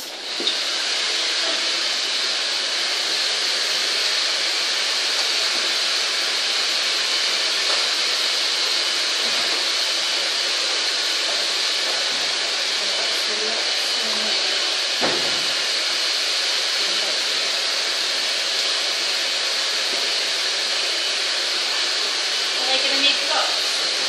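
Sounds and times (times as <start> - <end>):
sharp knock: 15.0 - 15.5.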